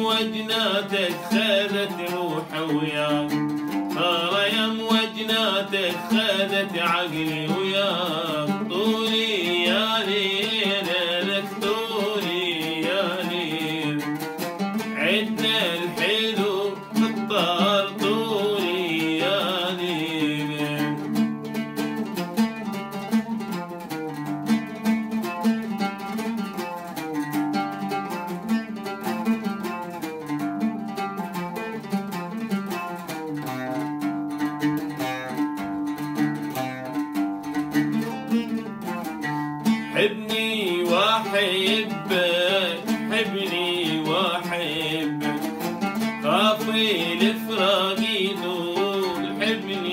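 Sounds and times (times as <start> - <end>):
man singing: 0.0 - 21.2, 39.8 - 49.9
oud playing plucked notes: 0.0 - 49.9.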